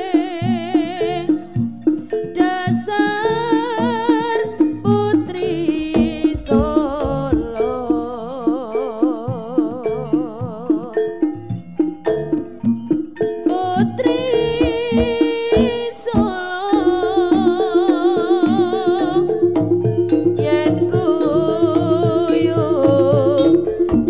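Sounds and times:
wavering held melody: 0.0s - 24.0s
rapid drum strokes: 4.1s - 8.7s, 14.0s - 16.5s.

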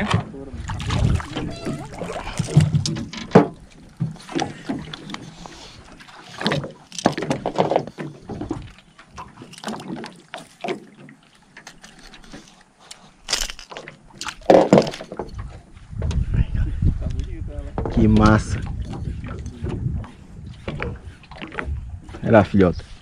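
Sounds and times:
fish splashing in water: 0.6s - 3.1s.

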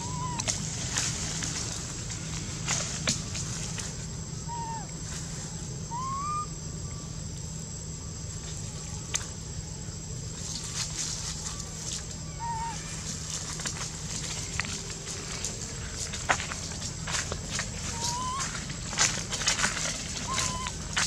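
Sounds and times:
rustles in dry leaves: 0.0s - 21.0s
steady low hum: 0.0s - 21.0s
short whistled calls: 5.9s - 6.5s, 17.8s - 18.6s, 20.2s - 20.9s.

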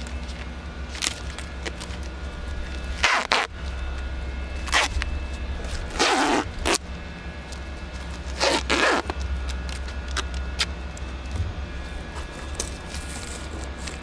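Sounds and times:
steady low hum: 0.0s - 14.0s
plastic tubing rasping and scraping: 11.3s - 14.0s.

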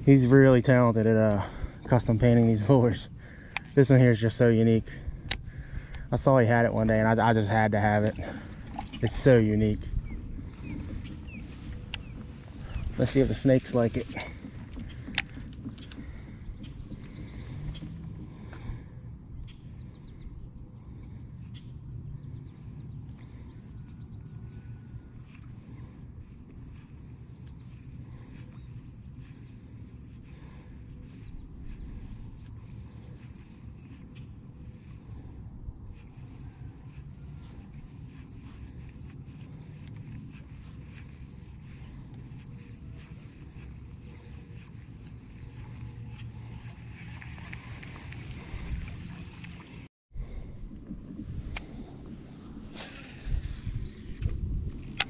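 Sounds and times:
high-pitched insect drone: 0.0s - 55.0s
low rumble: 47.6s - 55.0s.

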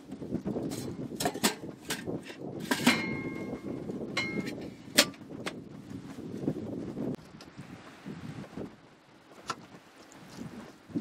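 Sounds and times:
metal pot clanking against oven rack: 0.7s - 5.2s.

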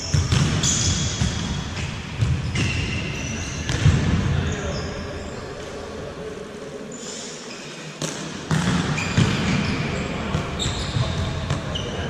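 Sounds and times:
shoes squeaking on floor: 0.0s - 3.8s, 8.9s - 12.0s
balls bouncing on hardwood court: 0.0s - 4.5s, 8.0s - 12.0s.

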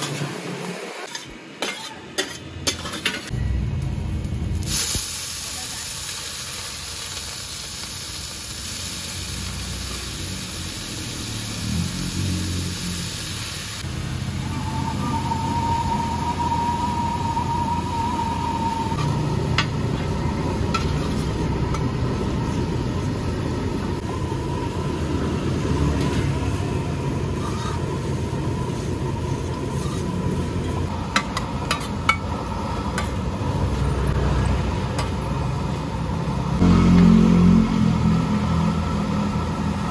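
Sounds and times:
noodles sizzling in hot oil: 4.5s - 17.3s.

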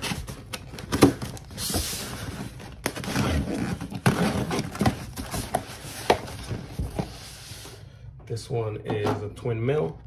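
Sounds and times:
cardboard scraping and rustling: 0.0s - 7.7s.

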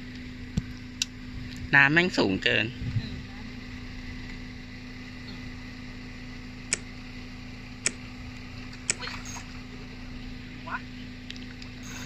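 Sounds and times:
faint steady hum: 0.0s - 12.0s
sharp clicks: 6.7s - 6.9s.

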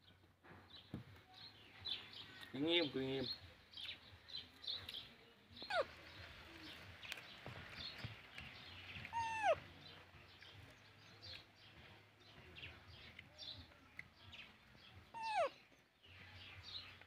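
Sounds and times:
baby monkey crying: 9.1s - 9.6s, 15.1s - 15.6s.

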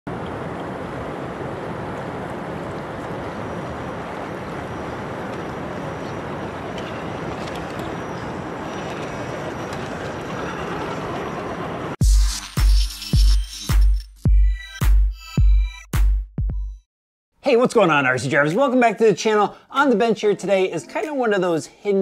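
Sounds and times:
river rushing: 0.1s - 9.4s.

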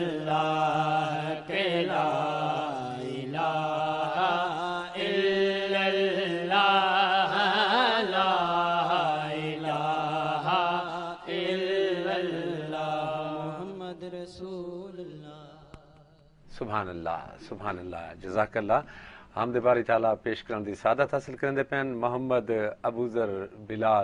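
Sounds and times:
man singing with vibrato: 0.0s - 15.9s.

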